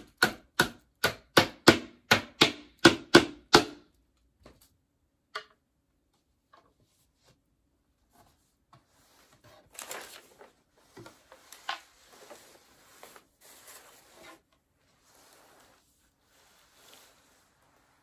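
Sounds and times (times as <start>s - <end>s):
panels scraping and rustling on carpet: 6.6s - 18.0s.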